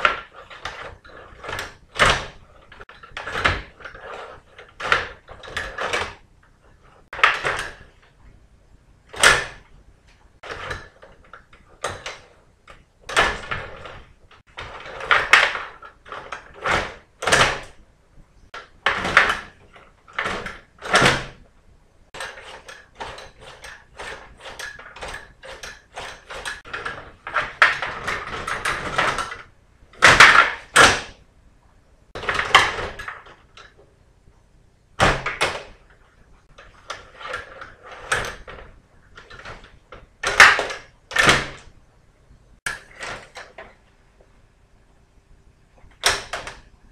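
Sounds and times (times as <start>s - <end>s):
table hockey rods rattling: 0.0s - 8.2s, 9.0s - 17.8s, 22.1s - 31.2s, 35.0s - 41.8s.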